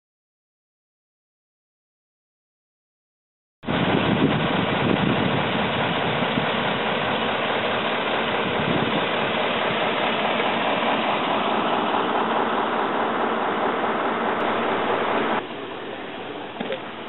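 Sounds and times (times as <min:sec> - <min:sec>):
diesel engines idling: 0:03.8 - 0:17.0.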